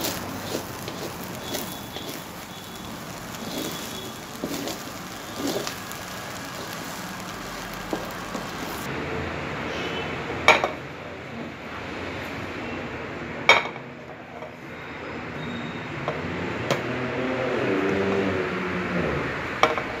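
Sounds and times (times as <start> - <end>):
steady background hiss: 0.0 - 8.9
utensil scraping a wok: 0.0 - 8.9.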